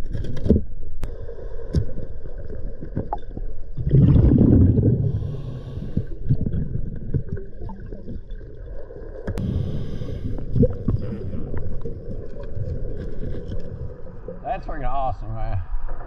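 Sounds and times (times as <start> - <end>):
low underwater rumble: 0.7 - 14.5
regulator bubbles gurgling: 1.1 - 14.4.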